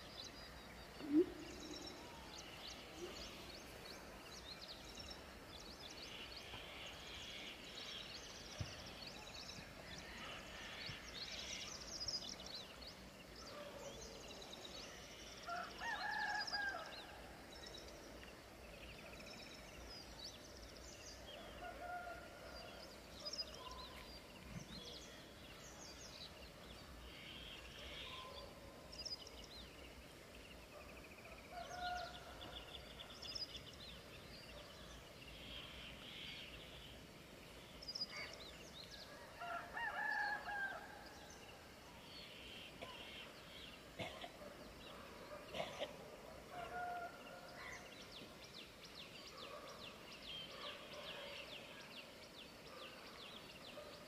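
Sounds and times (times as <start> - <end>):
rooster crowing: 39.4 - 40.8.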